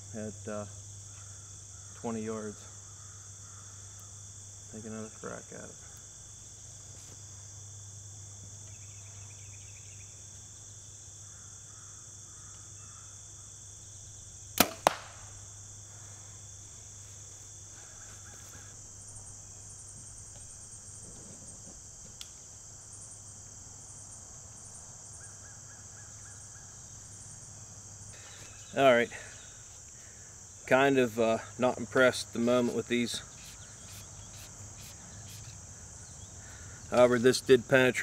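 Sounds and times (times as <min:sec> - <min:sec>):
insects droning: 0:00.0 - 0:38.0
arrow striking target cracks: 0:14.6 - 0:15.3.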